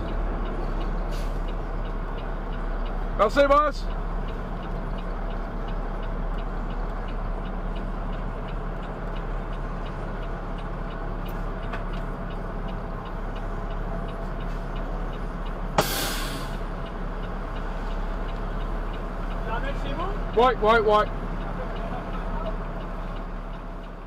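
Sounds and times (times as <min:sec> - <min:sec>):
truck engine running: 0:00.0 - 0:24.0
turn signal ticking: 0:00.0 - 0:24.0
air brakes hissing: 0:01.0 - 0:01.6, 0:15.8 - 0:16.8.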